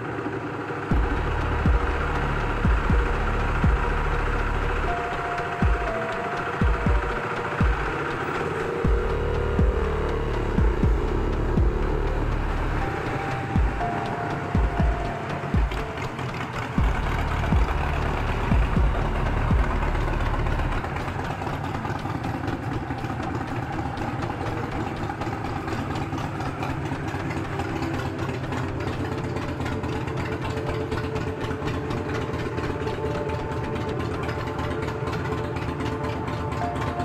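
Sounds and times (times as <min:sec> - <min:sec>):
motorcycle engines passing: 0:00.0 - 0:37.0
deep low rumble: 0:00.9 - 0:05.0, 0:08.8 - 0:14.0, 0:16.8 - 0:20.8.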